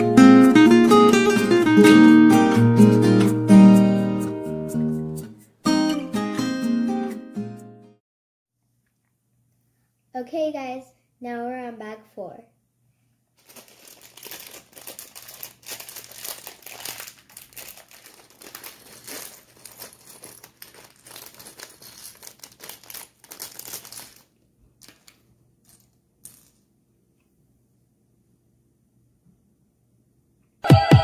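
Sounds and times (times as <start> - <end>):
plastic bag crinkling: 13.4 - 25.8
plastic bricks clicking: 23.7 - 26.6.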